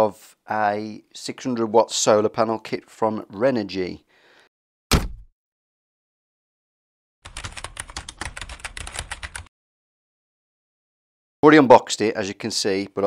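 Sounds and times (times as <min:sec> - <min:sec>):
short thump: 0:04.9 - 0:05.3.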